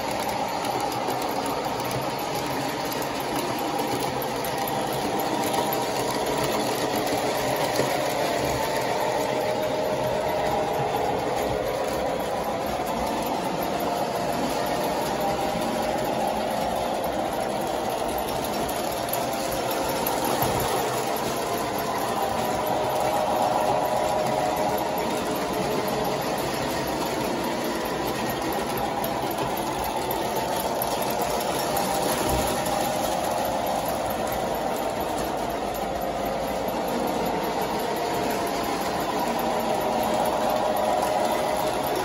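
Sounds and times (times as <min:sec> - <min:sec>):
electric motors humming: 0:00.0 - 0:42.0
model train wheels rolling: 0:00.0 - 0:42.0.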